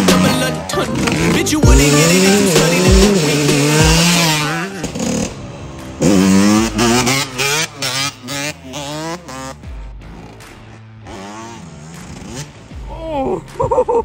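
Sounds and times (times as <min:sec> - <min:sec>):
dirt bike engine revving: 0:00.0 - 0:12.9.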